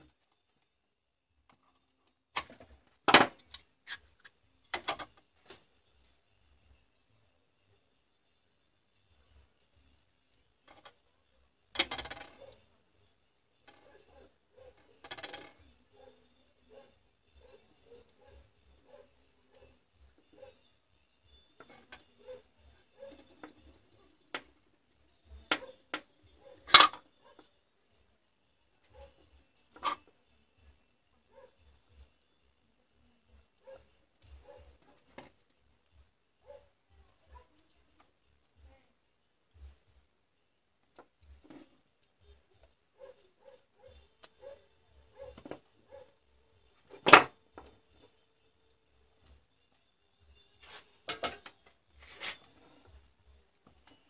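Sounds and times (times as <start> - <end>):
battery cells clicking and knocking: 1.4 - 7.3, 8.2 - 13.9, 14.7 - 15.9, 17.2 - 27.6, 28.4 - 30.9, 33.4 - 36.1.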